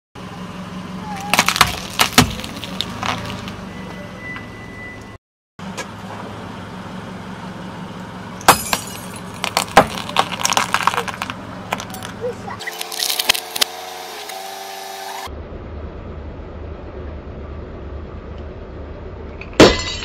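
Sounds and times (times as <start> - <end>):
low engine hum: 0.2 - 19.6
broken glass crunching: 1.3 - 3.4, 8.5 - 13.6.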